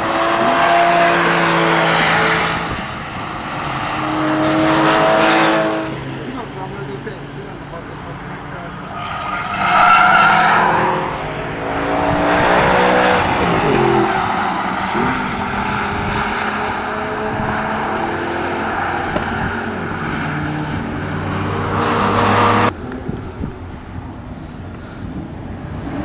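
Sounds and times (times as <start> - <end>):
sports car engine revving: 10.0 - 23.5.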